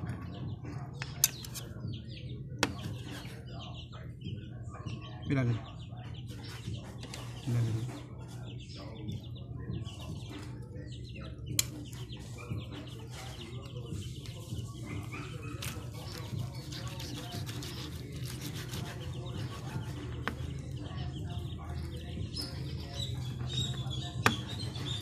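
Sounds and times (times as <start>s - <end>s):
knife and fork scraping: 1.0s - 1.7s, 14.2s - 20.5s.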